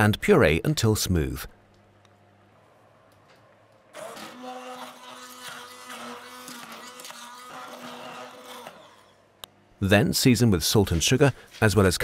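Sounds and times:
electric blender motor running: 0:03.9 - 0:09.3.

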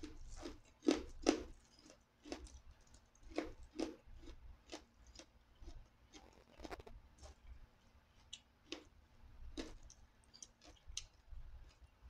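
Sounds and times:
chewing and mouth smacking: 0:00.0 - 0:07.5, 0:08.2 - 0:08.9, 0:09.6 - 0:11.9.

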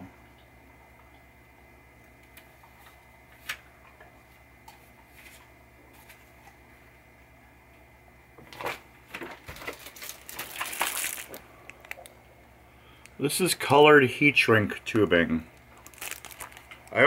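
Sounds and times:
steady low hum: 0:00.0 - 0:17.0
paper and plastic wrapping rustling: 0:08.5 - 0:12.1, 0:15.6 - 0:17.0.

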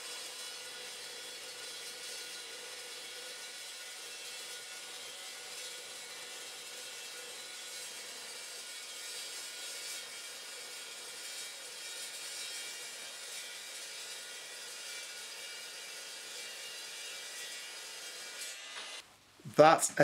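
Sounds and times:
chop saw cutting steel: 0:00.0 - 0:19.0.

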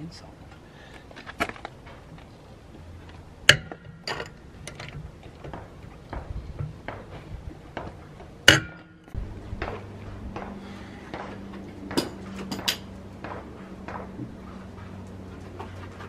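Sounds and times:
steady low hum: 0:00.0 - 0:16.0
loud ringing metal clanks: 0:08.4 - 0:09.2.

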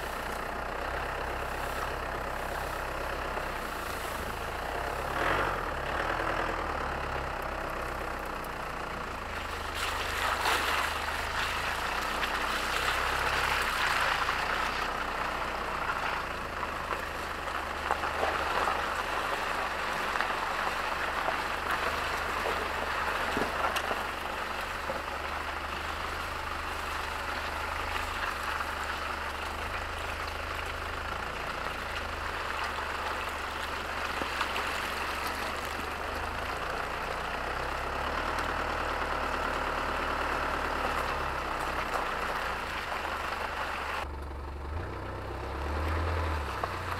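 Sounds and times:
diesel engine running: 0:00.0 - 0:46.9
ticks of grit and stones: 0:07.3 - 0:38.6
tyre rolling over gravel: 0:09.4 - 0:38.6.

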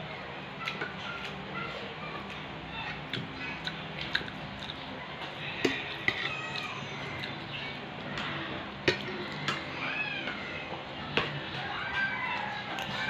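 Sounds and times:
person chewing: 0:02.2 - 0:08.3.

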